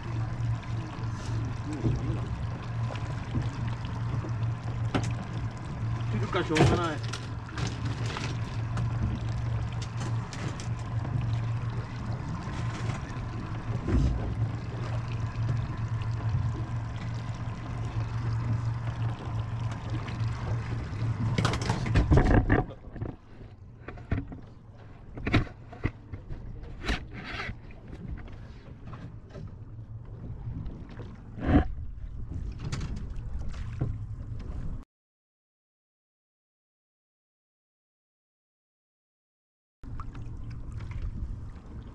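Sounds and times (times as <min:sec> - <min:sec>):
outboard motor idling: 0:00.0 - 0:26.6
water sloshing at hull: 0:00.0 - 0:34.8, 0:39.8 - 0:41.9.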